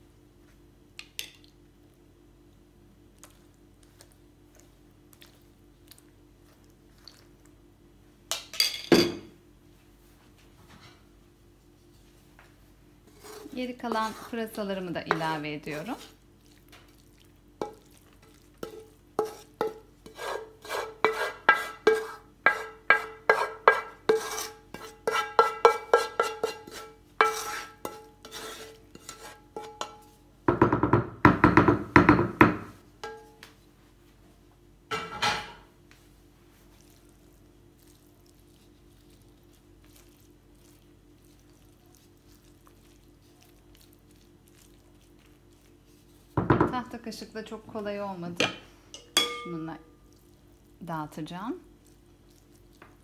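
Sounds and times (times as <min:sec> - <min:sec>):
wooden spoon knocking on pan: 0:29.6 - 0:33.2, 0:46.4 - 0:46.9.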